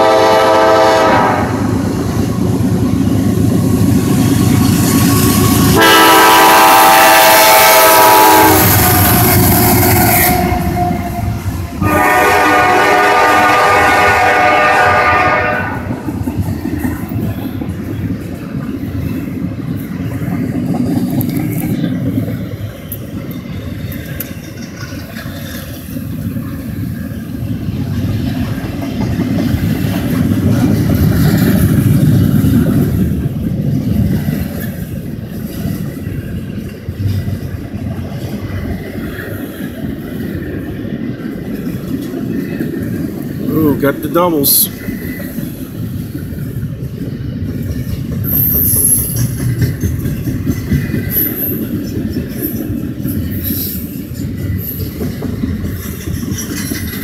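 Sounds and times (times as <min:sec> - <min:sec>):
locomotive horn: 0:00.0 - 0:01.8, 0:05.7 - 0:15.9
freight train rumbling on rails: 0:00.0 - 0:57.0.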